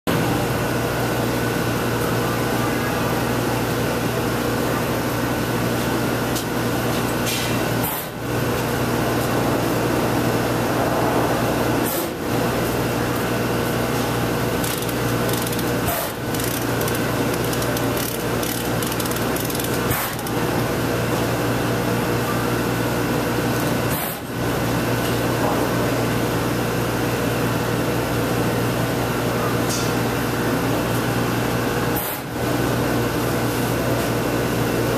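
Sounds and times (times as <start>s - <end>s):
electric fan whirring: 0.1s - 34.9s.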